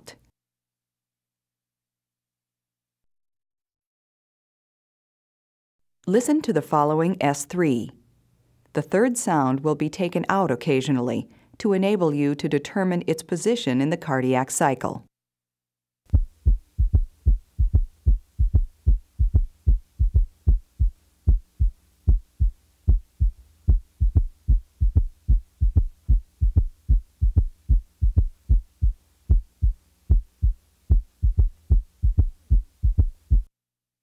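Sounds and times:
heartbeat through stethoscope: 16.1 - 33.5.

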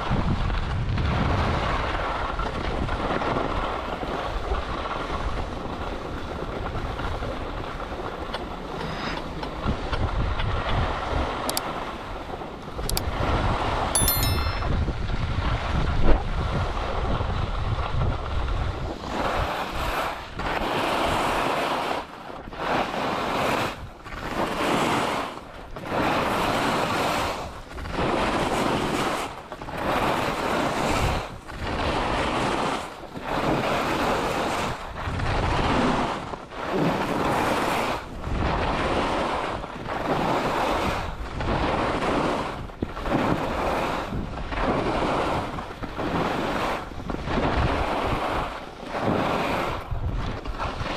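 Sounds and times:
wind on microphone: 0.0 - 50.9.

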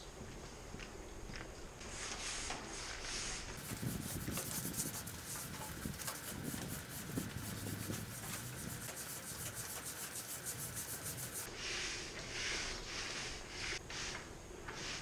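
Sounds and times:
tool scraping concrete: 2.9 - 11.5.

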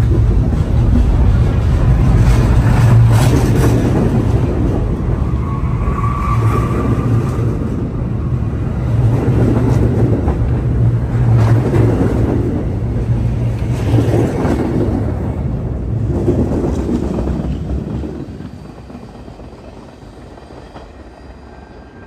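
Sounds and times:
clacks over rail joints: 0.0 - 5.0
train wheels rumbling on rail: 0.0 - 22.0.

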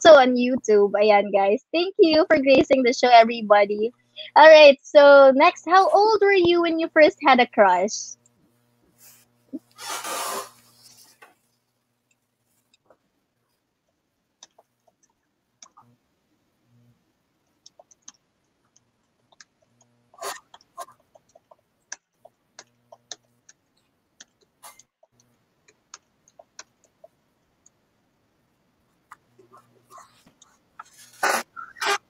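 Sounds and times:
faint irregular clicks and ticks: 10.7 - 32.0.

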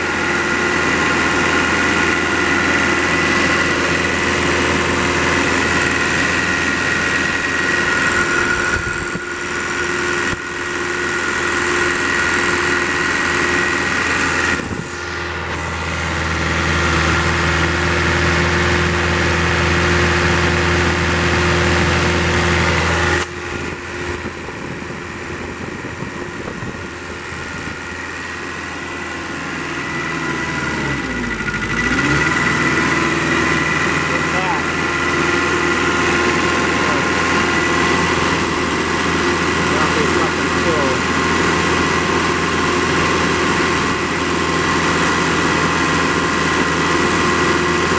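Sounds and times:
diesel engine idling: 0.0 - 47.9.

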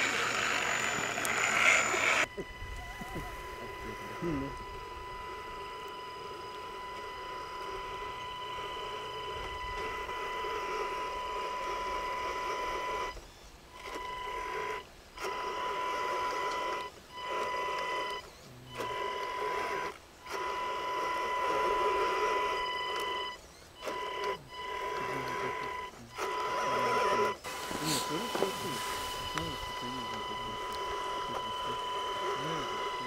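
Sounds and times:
electric motor whining: 0.0 - 33.0
wheels churning through mud: 26.5 - 33.0.

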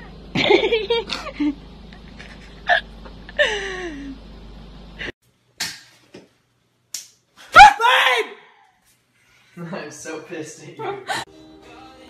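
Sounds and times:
steady background hum: 0.0 - 8.2
person crying out: 7.5 - 8.5.

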